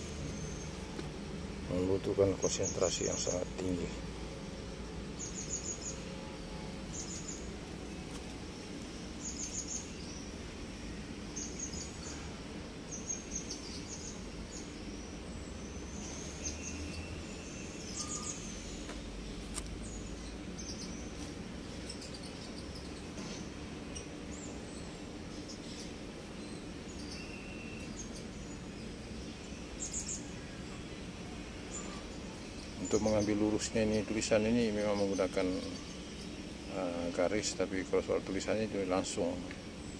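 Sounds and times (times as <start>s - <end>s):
birds chirping: 0.0s - 39.9s
low background hum: 0.0s - 39.9s.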